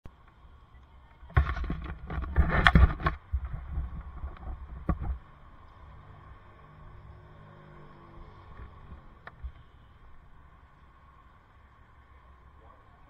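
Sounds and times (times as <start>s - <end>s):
microphone handling noise: 1.3s - 5.2s.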